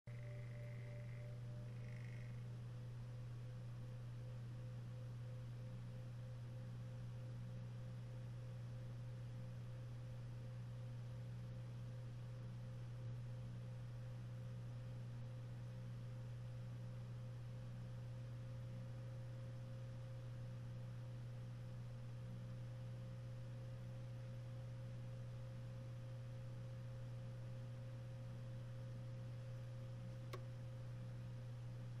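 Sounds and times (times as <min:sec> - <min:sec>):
faint high steady tone: 0:00.1 - 0:07.2
low hum: 0:00.1 - 0:32.0
faint click: 0:30.2 - 0:30.6.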